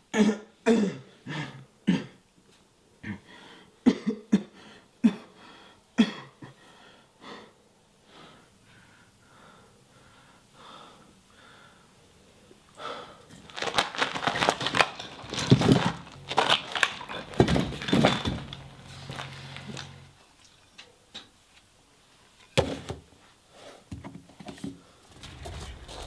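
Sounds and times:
man gasping for breath: 0:06.5 - 0:12.0, 0:12.8 - 0:13.3
low steady hum: 0:13.3 - 0:20.8.

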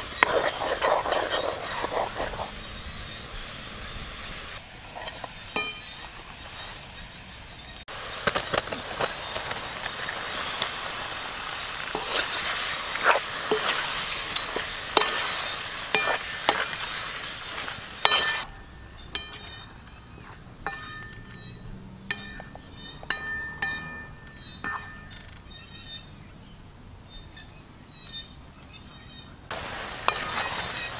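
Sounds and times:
food sizzling in pan: 0:07.9 - 0:18.5, 0:29.5 - 0:30.9
high bird calls: 0:11.3 - 0:17.6, 0:18.3 - 0:26.4
utensil clinking against pan: 0:15.0 - 0:16.7, 0:18.0 - 0:19.7, 0:20.6 - 0:21.5, 0:22.1 - 0:25.2.

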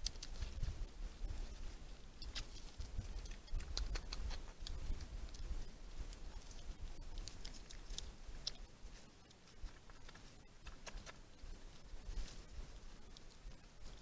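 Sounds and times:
small clicks and rustles: 0:01.6 - 0:11.5.

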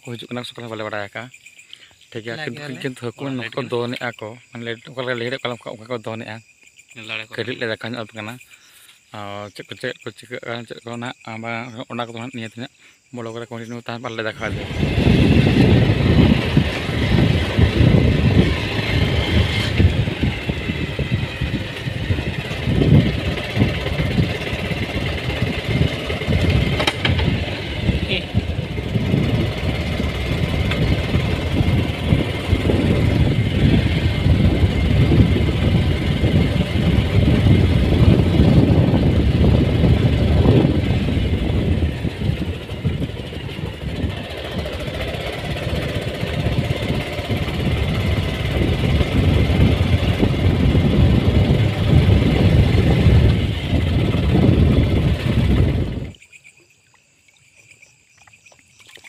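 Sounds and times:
wind noise on microphone: 0:14.2 - 0:56.2
motorcycle engine running: 0:14.3 - 0:56.1.

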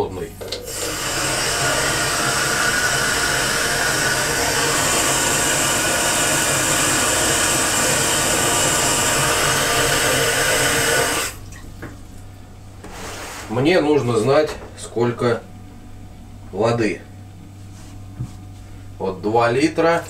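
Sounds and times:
tap water running into jug: 0:00.6 - 0:11.4.

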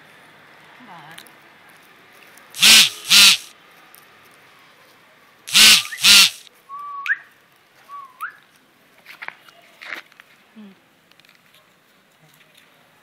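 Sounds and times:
harsh short calls: 0:02.6 - 0:03.5, 0:05.5 - 0:06.5.

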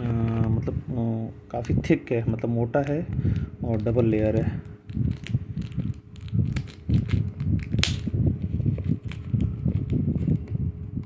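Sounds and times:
plastic film crinkling: 0:02.3 - 0:10.6
scissors cutting plastic: 0:03.7 - 0:08.1, 0:08.7 - 0:10.3.

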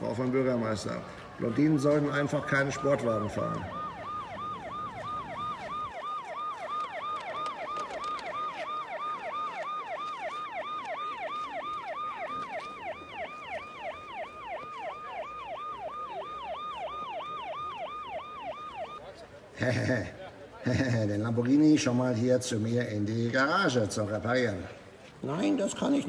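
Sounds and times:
ambulance siren yelping: 0:00.0 - 0:19.9.

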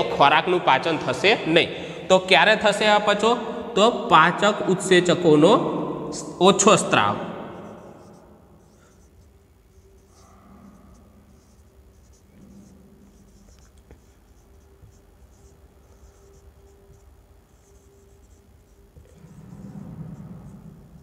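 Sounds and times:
marker pen scratching on whiteboard: 0:06.6 - 0:21.0.

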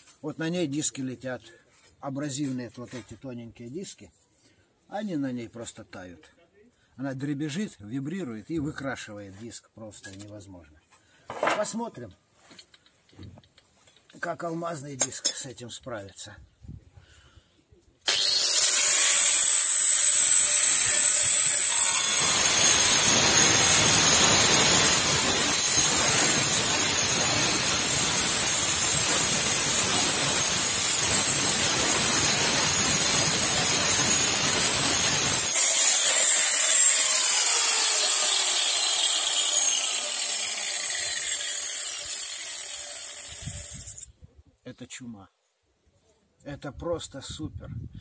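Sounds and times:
angle grinder whining: 0:18.1 - 0:44.1
grinder cutting steel sheet: 0:18.1 - 0:44.1.

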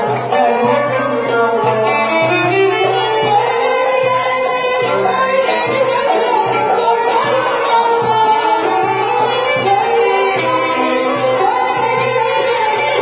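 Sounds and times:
amplified instrumental accompaniment: 0:00.0 - 0:13.0
woman singing into a microphone: 0:00.0 - 0:13.0.

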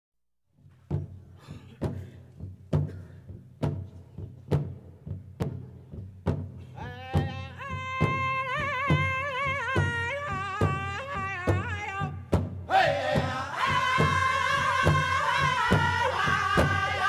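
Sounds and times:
big drum steady beat: 0:00.9 - 0:17.0.

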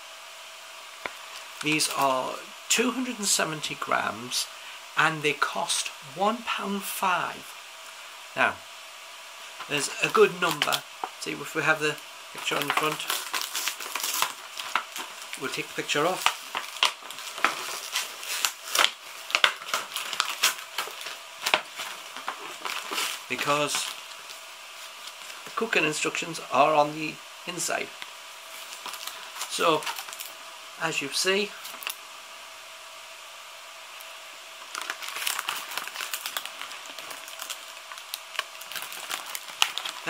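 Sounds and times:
plastic packaging crinkling: 0:09.6 - 0:25.7, 0:28.0 - 0:30.4, 0:31.5 - 0:32.0, 0:34.0 - 0:40.0.

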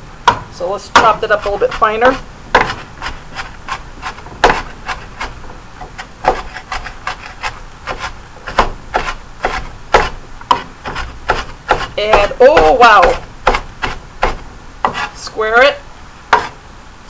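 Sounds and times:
knife chopping on wooden board: 0:00.2 - 0:15.2, 0:16.3 - 0:16.6
knife scraping through onion: 0:00.9 - 0:15.3.

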